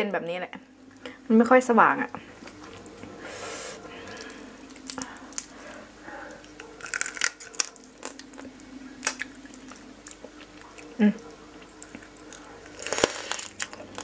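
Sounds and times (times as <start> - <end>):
crab shell cracking: 4.1 - 5.6, 6.4 - 10.3.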